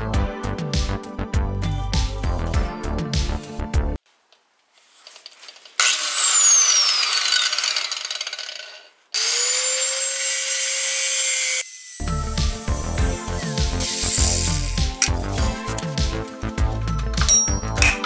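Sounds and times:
music: 0:00.0 - 0:04.0, 0:12.0 - 0:18.0
angle grinder whine: 0:05.8 - 0:15.3.

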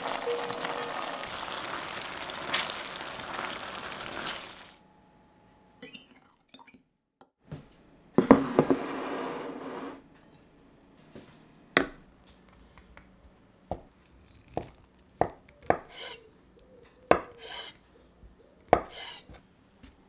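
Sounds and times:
curry sizzling in a pan: 0:00.0 - 0:04.8.

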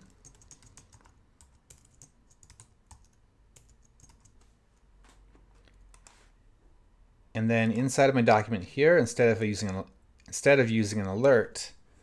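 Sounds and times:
typing on keyboard: 0:00.0 - 0:04.5.

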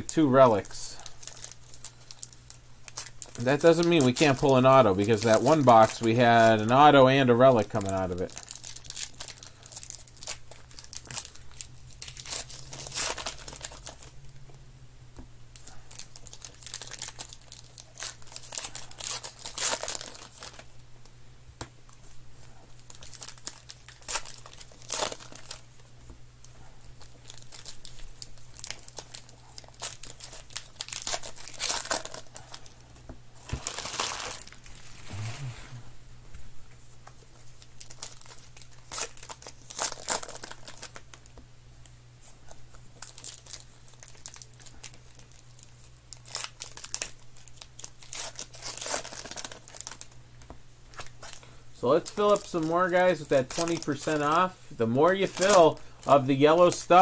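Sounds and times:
card pack wrappers tearing and crinkling: 0:00.0 - 0:14.2, 0:15.6 - 0:20.7, 0:22.8 - 0:25.8, 0:26.9 - 0:35.2, 0:37.0 - 0:41.4, 0:43.0 - 0:50.2, 0:50.9 - 0:57.0
steady low hum: 0:20.0 - 0:38.7.

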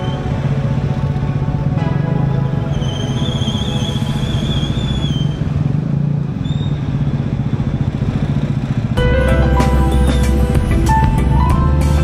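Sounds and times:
motorcycle engines rumbling: 0:00.0 - 0:12.0
high wavering whistle-like tone: 0:02.7 - 0:05.5.

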